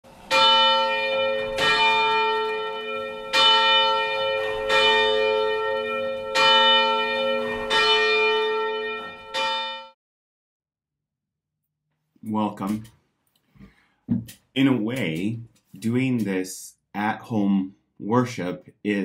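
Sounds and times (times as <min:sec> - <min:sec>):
church bell ringing: 0:00.1 - 0:10.0.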